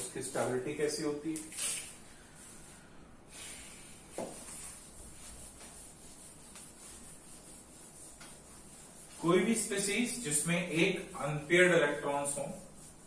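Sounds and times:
duster rubbing on a whiteboard: 0:03.4 - 0:13.0.

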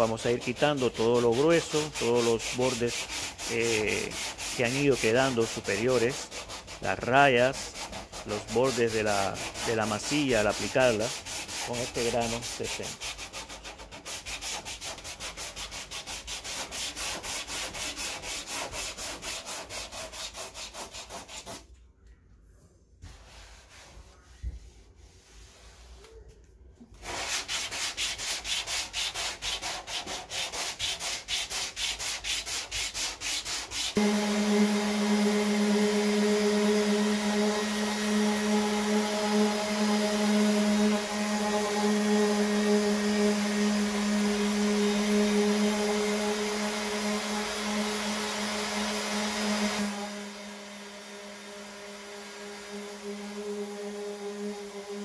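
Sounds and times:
sanding disc grinding hiss: 0:00.0 - 0:13.0, 0:33.8 - 0:55.0
hand sanding with sanding block: 0:00.0 - 0:21.8, 0:23.0 - 0:26.2, 0:26.9 - 0:55.0
orbital sander motor hum: 0:34.0 - 0:55.0.

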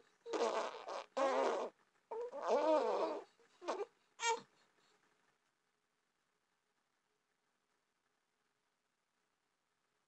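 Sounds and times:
baby fussing: 0:00.2 - 0:04.5.

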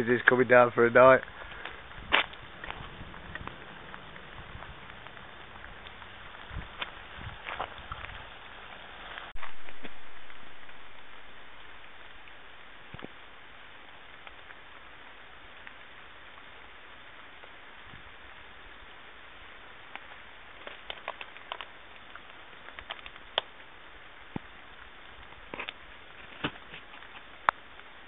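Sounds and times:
steady rain hiss: 0:00.0 - 0:28.0
drops falling ticks: 0:01.2 - 0:08.2, 0:19.9 - 0:25.8.

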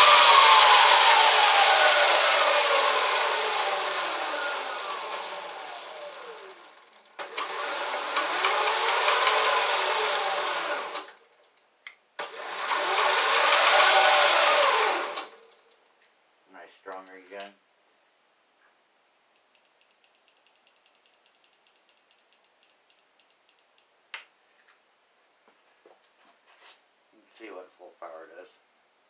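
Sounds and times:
electric motor and chain whining: 0:00.0 - 0:11.5, 0:12.2 - 0:15.8
click: 0:19.4 - 0:24.2.

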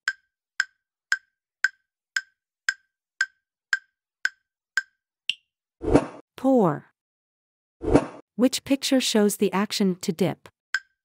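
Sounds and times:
higher-pitched tick: 0:00.0 - 0:05.4
timer ticking: 0:00.0 - 0:05.4, 0:10.8 - 0:11.0.

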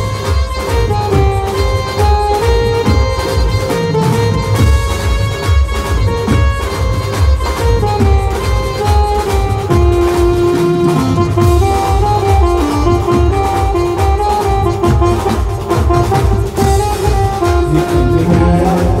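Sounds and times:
keyboard melody: 0:00.0 - 0:19.0
steady drum beat: 0:00.0 - 0:19.0.

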